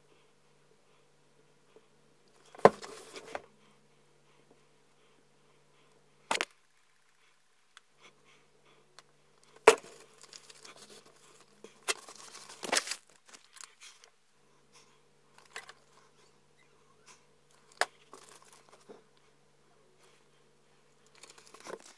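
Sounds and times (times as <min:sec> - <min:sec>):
foil pouch crinkling: 0:11.8 - 0:13.7.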